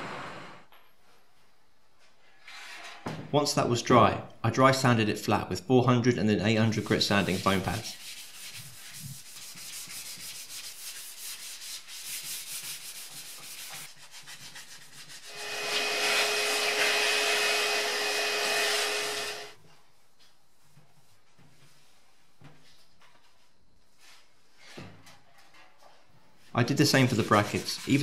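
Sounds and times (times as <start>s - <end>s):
hand sanding metal: 6.8s - 19.6s, 26.6s - 28.0s
loud steady hiss with whistle: 15.3s - 19.6s.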